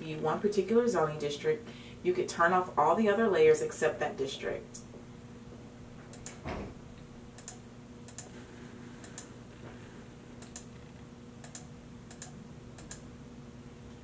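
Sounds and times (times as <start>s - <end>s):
steady low hum: 0.0s - 14.0s
computer mouse buttons clicking: 10.4s - 10.8s, 11.4s - 13.0s.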